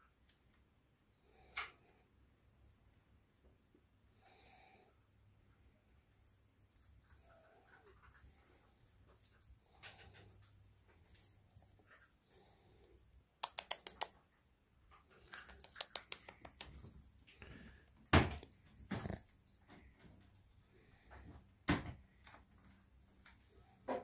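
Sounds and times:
faint room noise: 0.0 - 24.0
sharp clicks: 13.4 - 14.2.

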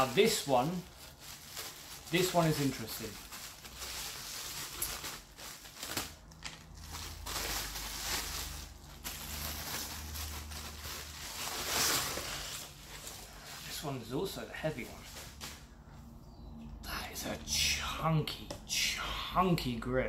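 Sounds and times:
bubble wrap crinkling: 0.0 - 15.7.

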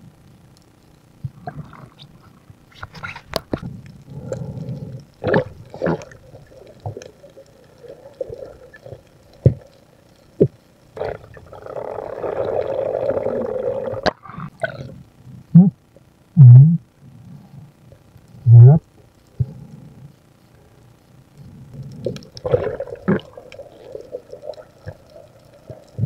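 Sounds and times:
underwater rumbling water movement: 3.0 - 14.9, 21.4 - 26.0.

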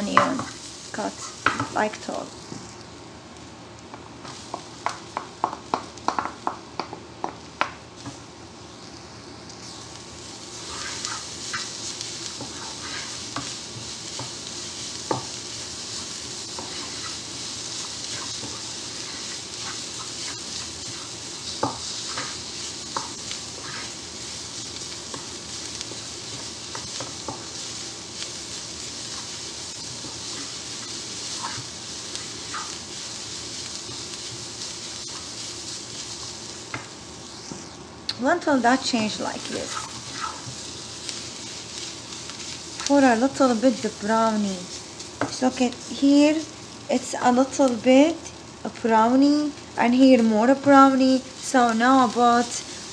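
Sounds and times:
onions sizzling in frying pan: 0.0 - 52.9
spatula tapping and scraping pan: 1.4 - 1.8, 3.9 - 8.2, 15.0 - 15.4, 16.4 - 24.0, 25.1 - 27.6.

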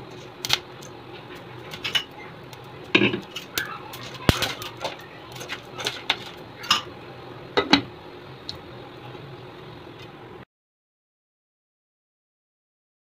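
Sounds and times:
popcorn popping in a pan: 0.0 - 10.2.

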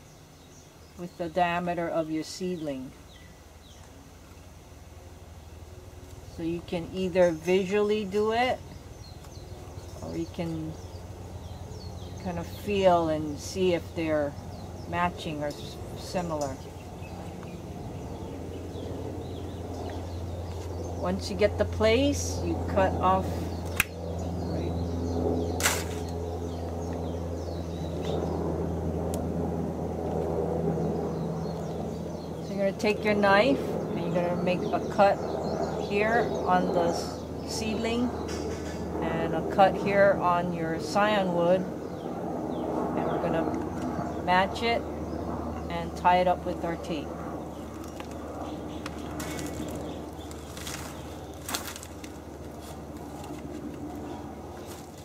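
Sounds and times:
faint birds: 0.0 - 55.0
steady low hum: 0.0 - 55.0
leaves rustling: 25.6 - 26.2, 47.5 - 55.0.

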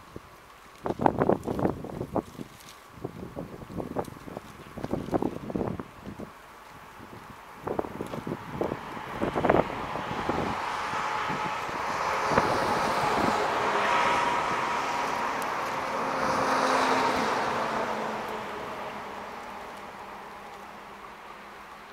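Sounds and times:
road vehicle passing: 4.5 - 21.9.

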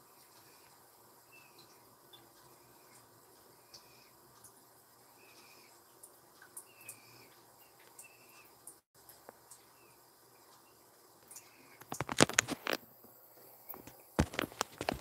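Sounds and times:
faint high chirps: 0.1 - 4.2, 5.0 - 5.8, 6.5 - 8.8, 9.5 - 11.8
soft ticks: 1.6 - 4.6.

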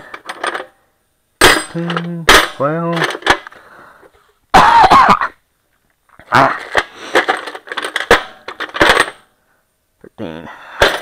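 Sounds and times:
metal tools clanking in toolbox: 0.0 - 0.8, 1.4 - 3.5, 6.5 - 9.2, 10.8 - 11.0.

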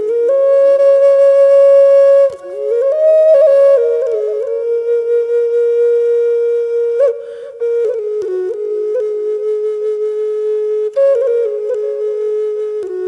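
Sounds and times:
solo flute melody: 0.0 - 13.0.

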